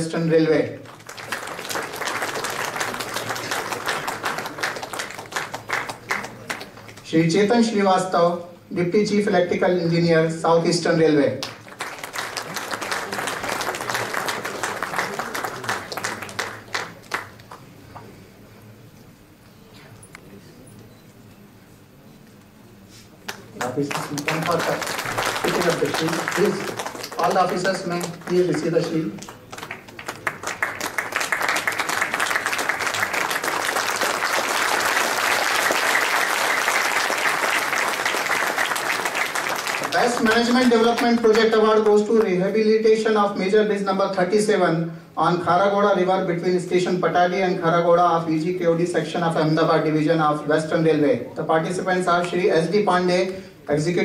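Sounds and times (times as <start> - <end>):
audience applauding: 0.8 - 7.1, 11.4 - 18.0, 23.3 - 41.9.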